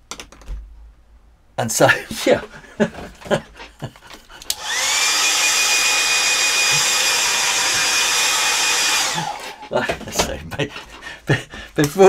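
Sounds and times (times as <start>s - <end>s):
hairdryer motor blowing: 4.4s - 9.7s.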